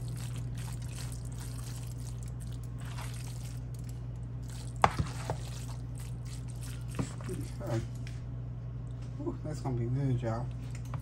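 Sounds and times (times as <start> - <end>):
spoon stirring wet mixture: 0.0 - 8.1.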